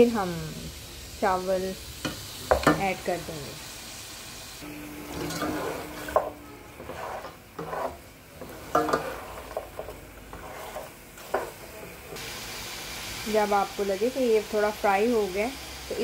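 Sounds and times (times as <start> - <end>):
meat sizzling in oil: 0.0 - 16.0
spatula scraping a metal pot: 5.1 - 12.2.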